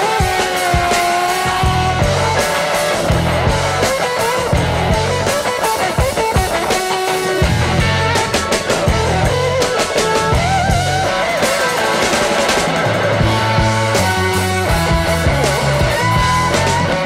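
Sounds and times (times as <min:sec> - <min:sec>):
rock music: 0:00.0 - 0:17.0
wavering lead guitar: 0:00.0 - 0:17.0.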